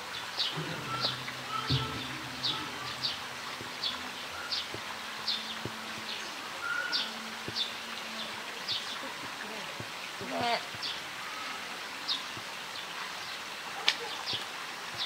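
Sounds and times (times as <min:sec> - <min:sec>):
outdoor background noise: 0:00.0 - 0:15.0
bird chirping: 0:00.4 - 0:08.9.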